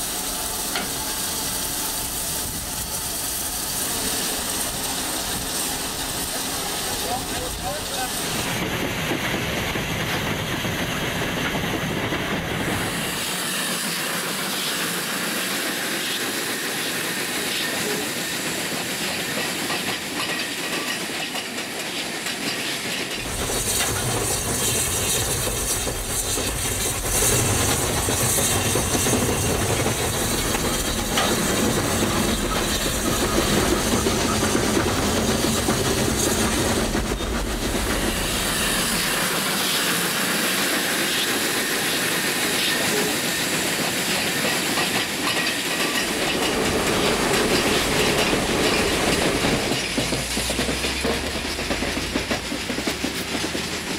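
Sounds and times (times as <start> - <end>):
steam hissing: 0.0 - 53.9
train wheels clattering on rails: 0.0 - 53.9.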